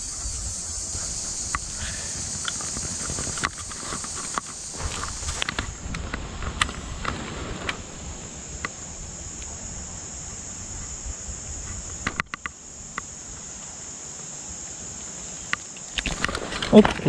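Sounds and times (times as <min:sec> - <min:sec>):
insects chorus: 0:00.0 - 0:17.0
handling clicks and rustles: 0:01.0 - 0:07.9, 0:15.5 - 0:17.0.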